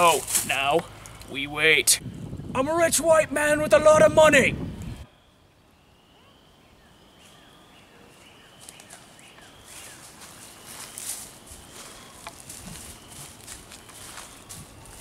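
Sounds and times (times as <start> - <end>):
footsteps crunching dry leaves: 0.0 - 1.1, 8.1 - 15.0
faint bird chirps: 4.9 - 15.0.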